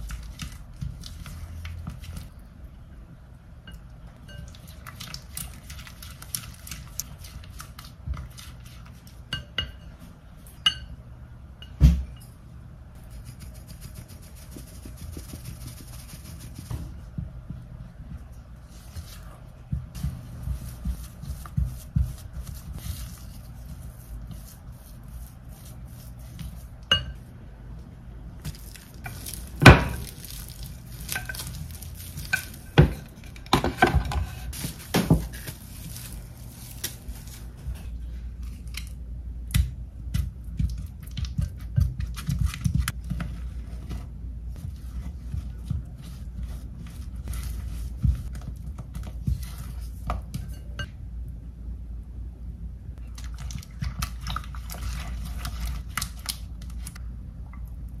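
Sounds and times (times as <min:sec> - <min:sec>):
low steady hum: 0:00.0 - 0:58.0.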